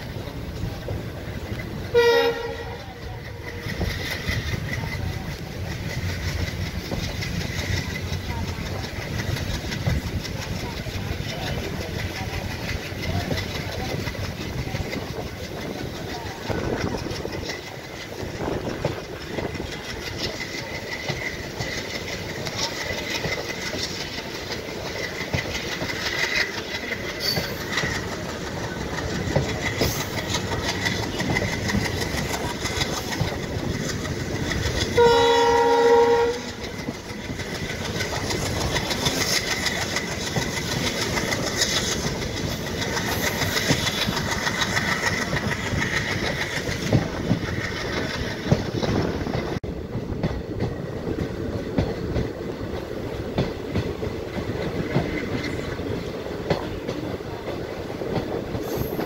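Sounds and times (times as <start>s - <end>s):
passenger train running: 0.0s - 59.0s
locomotive horn: 1.8s - 3.0s, 35.0s - 36.6s.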